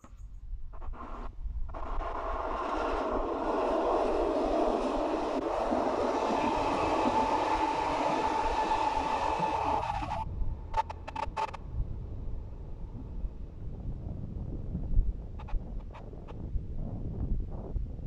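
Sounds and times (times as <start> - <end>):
steady whine: 0.0 - 16.3
electric train running past: 1.7 - 13.9.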